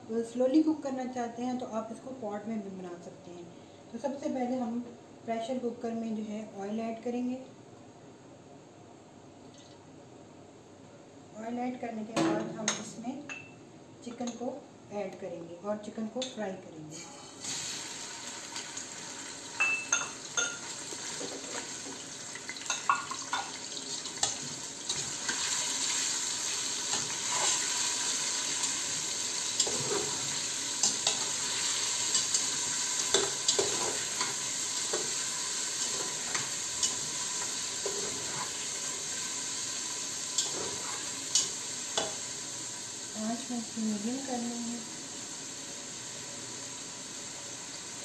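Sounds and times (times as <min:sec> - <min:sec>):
meat sizzling in hot oil: 0:17.2 - 0:48.0
metal spatula scraping a pot: 0:26.9 - 0:27.7, 0:29.6 - 0:31.3, 0:37.8 - 0:38.6, 0:40.4 - 0:41.4.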